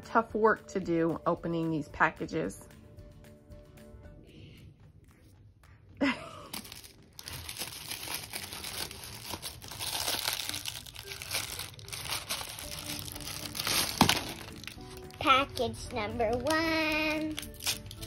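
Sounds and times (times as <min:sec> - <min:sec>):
plastic wrapper crinkling: 0:06.5 - 0:15.2, 0:16.3 - 0:18.0.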